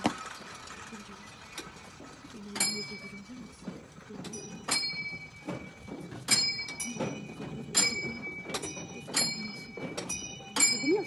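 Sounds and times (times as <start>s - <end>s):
small metal bell dinging: 4.3s - 11.0s.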